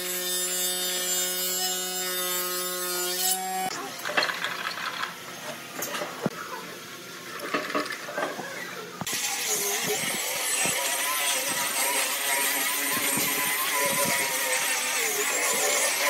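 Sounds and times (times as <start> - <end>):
angle grinder sanding wood: 9.0 - 16.0.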